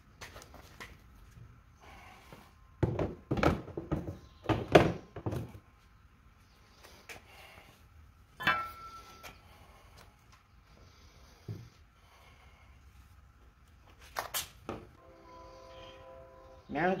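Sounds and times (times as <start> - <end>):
heavy boxes thumping onto steel: 2.8 - 5.6
sharp metal clank: 8.4 - 9.2.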